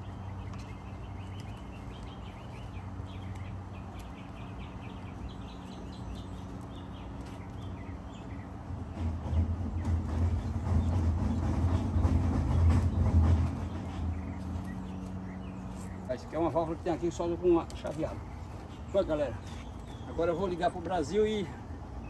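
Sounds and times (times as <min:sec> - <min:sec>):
small birds chirping: 0:00.0 - 0:22.0
steady low hum: 0:00.0 - 0:22.0
low rumble: 0:08.7 - 0:15.6.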